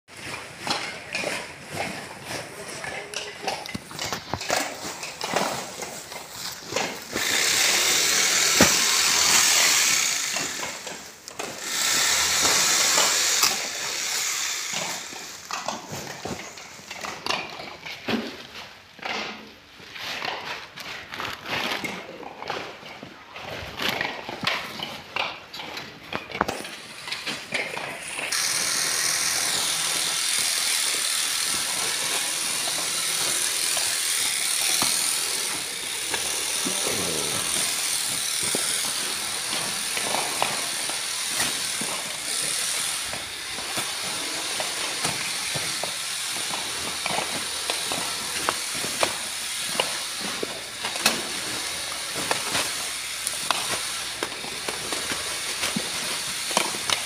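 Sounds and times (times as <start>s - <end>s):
plastic sack rustling: 0.1s - 13.4s, 26.5s - 57.0s
loud steady hiss: 6.7s - 15.6s, 28.3s - 57.0s.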